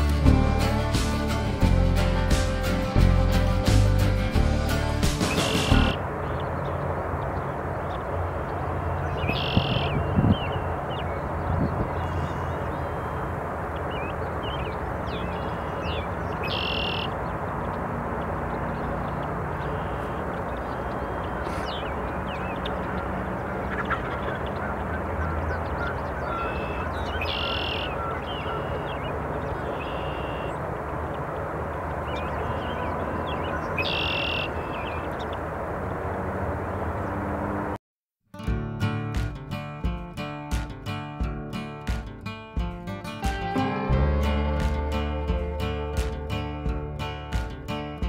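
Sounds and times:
loud short bird calls: 0:09.0 - 0:10.6, 0:14.0 - 0:17.2, 0:23.6 - 0:30.6, 0:32.2 - 0:35.2
faint bird chirps: 0:09.0 - 0:13.3, 0:13.9 - 0:17.2, 0:19.6 - 0:22.8, 0:23.6 - 0:30.6, 0:32.0 - 0:35.4.

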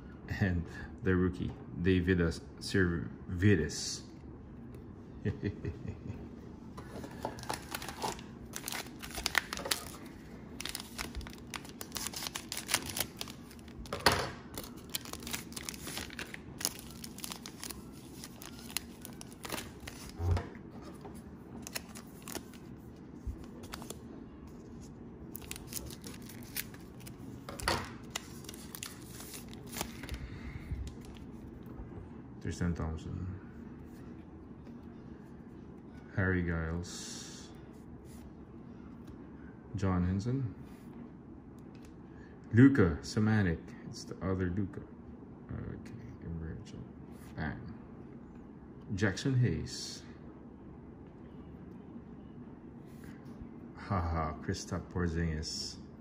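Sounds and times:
cellophane wrapper tearing and crinkling: 0:07.4 - 0:13.9, 0:14.5 - 0:20.2, 0:21.6 - 0:22.7, 0:25.3 - 0:30.1.

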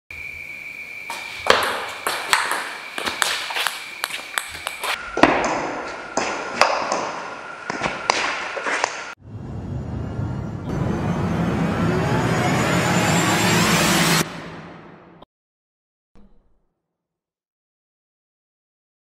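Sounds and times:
steady high tone: 0:09.2 - 0:15.2.

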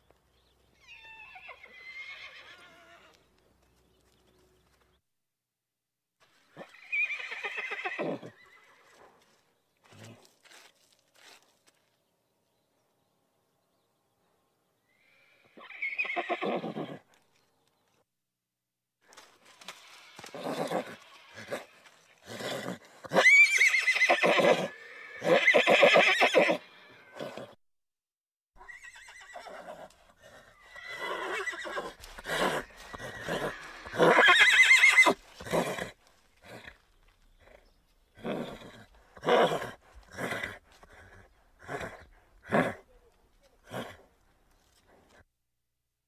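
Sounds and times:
horse whinnying: 0:00.8 - 0:03.2, 0:06.6 - 0:09.0, 0:14.9 - 0:17.1, 0:20.2 - 0:27.6, 0:28.6 - 0:36.8, 0:38.2 - 0:42.9.

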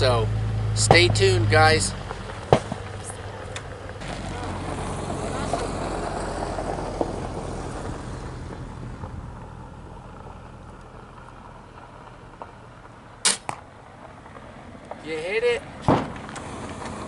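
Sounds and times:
crossbow string crack: 0:13.2 - 0:13.6.

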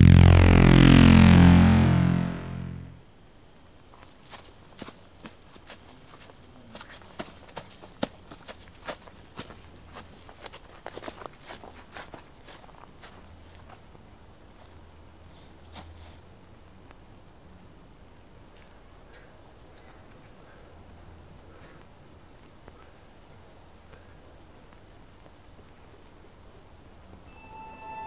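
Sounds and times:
music: 0:00.0 - 0:03.0, 0:27.3 - 0:28.0.

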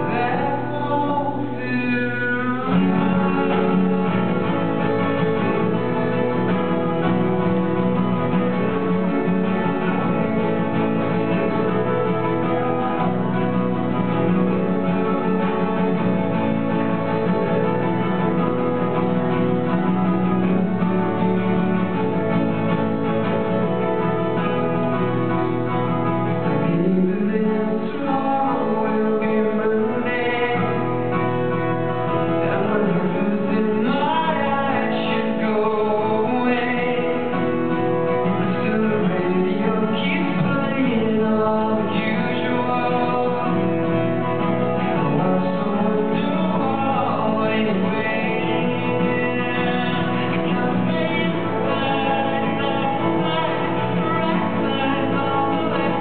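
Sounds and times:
man singing: 0:00.0 - 0:20.5, 0:26.0 - 0:56.0
acoustic guitar strumming: 0:00.0 - 0:56.0.

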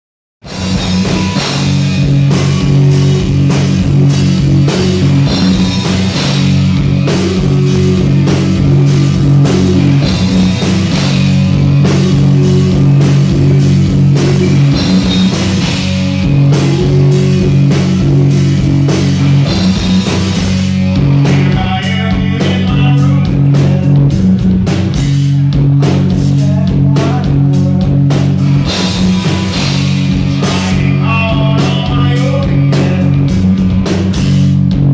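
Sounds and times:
bass guitar: 0:00.4 - 0:34.9
drum kit: 0:00.4 - 0:34.9
electric guitars: 0:00.4 - 0:34.9
singer's voice: 0:20.9 - 0:24.1, 0:26.0 - 0:28.2, 0:30.2 - 0:33.5.

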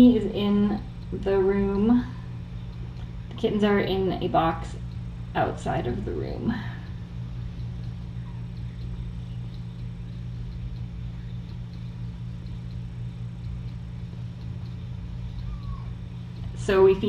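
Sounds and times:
low electrical hum: 0:00.0 - 0:17.0
kitten chirp: 0:15.3 - 0:16.0.

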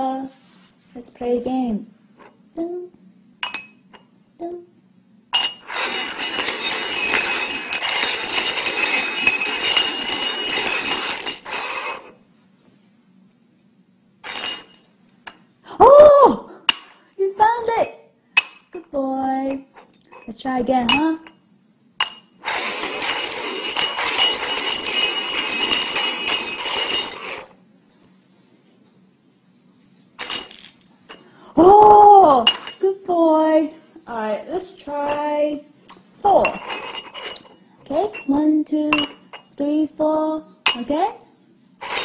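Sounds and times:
cups scraping on hard surface: 0:05.4 - 0:12.2, 0:22.4 - 0:27.6, 0:36.4 - 0:39.6, 0:41.8 - 0:42.0.

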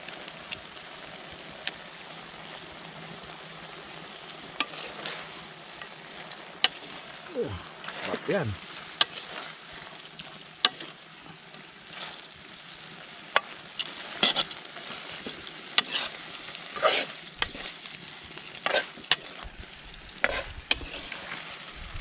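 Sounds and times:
meat sizzling in a pan: 0:00.0 - 0:22.0
ladle scraping pan: 0:04.6 - 0:05.4, 0:13.8 - 0:17.8, 0:18.6 - 0:19.4, 0:20.2 - 0:21.5.

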